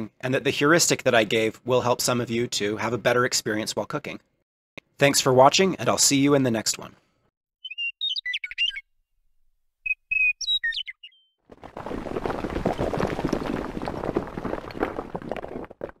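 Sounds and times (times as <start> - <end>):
birds chirping and whistling: 7.6 - 8.9, 9.9 - 11.4
crumbling stone rumble: 11.5 - 16.0.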